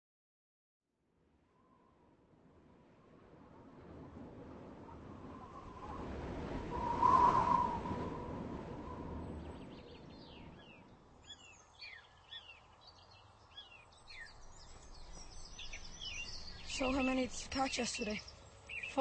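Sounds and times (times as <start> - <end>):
small bird chirping: 9.6 - 19.0.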